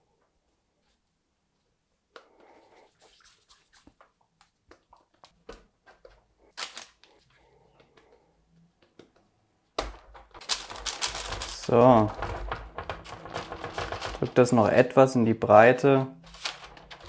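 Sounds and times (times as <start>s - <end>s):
parchment paper rustling: 10.0s - 17.0s.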